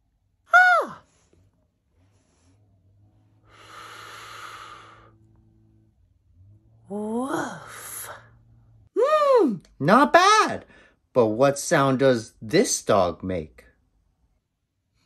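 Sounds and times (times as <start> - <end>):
person exhaling: 3.4 - 5.2.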